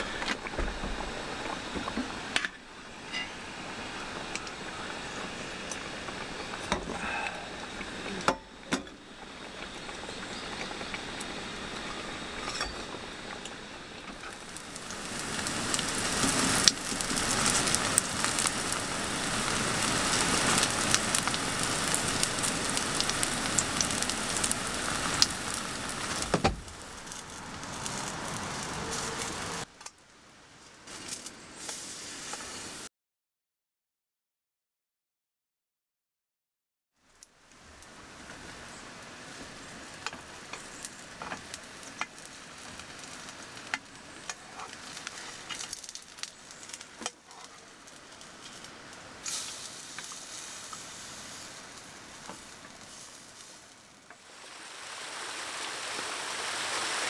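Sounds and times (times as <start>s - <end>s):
batter sizzling in oil: 0.0s - 29.7s, 37.0s - 57.0s
quiet hiss: 37.0s - 57.0s.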